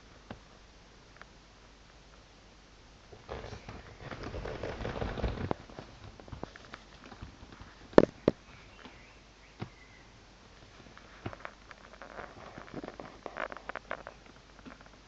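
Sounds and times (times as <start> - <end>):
scuffling and rustling: 3.1 - 9.0, 10.5 - 15.0.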